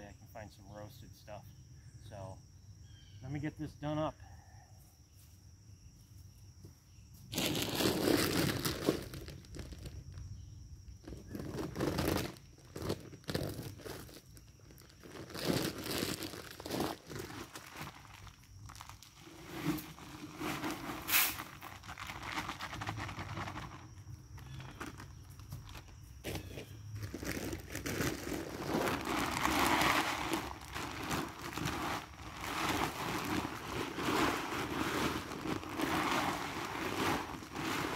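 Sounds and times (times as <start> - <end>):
footsteps crunching on dry leaves: 7.3 - 9.9, 24.4 - 37.9
feed bags rustling: 7.3 - 10.2, 11.0 - 37.9.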